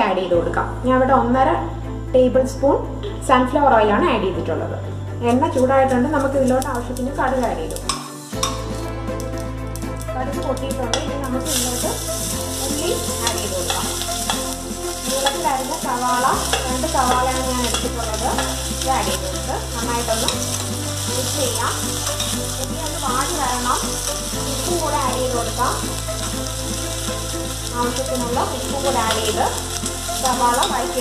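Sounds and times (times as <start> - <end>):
soft background music: 0.0 - 31.0
onions sizzling in oil: 5.2 - 31.0
spoon stirring: 7.8 - 8.8, 13.2 - 19.1.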